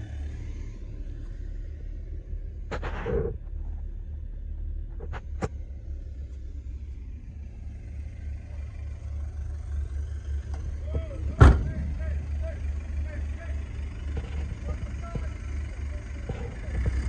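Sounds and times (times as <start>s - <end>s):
engine idling: 0.0s - 17.0s
loud thump: 11.3s - 12.0s.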